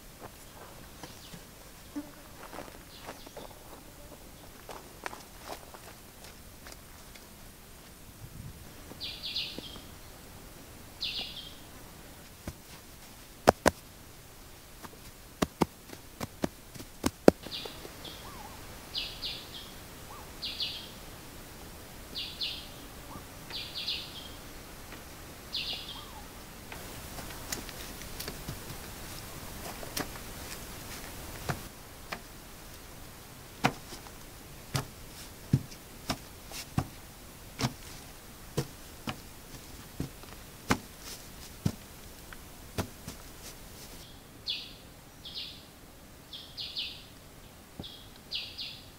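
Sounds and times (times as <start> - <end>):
forest ambience: 0.0 - 48.9
bird high chirping call: 9.0 - 9.9, 11.0 - 11.6, 17.4 - 21.0, 22.2 - 24.4, 25.5 - 26.3, 44.0 - 45.6, 47.8 - 48.9
sharp taps and knocks: 13.4 - 13.8, 15.4 - 17.5, 33.6 - 34.1.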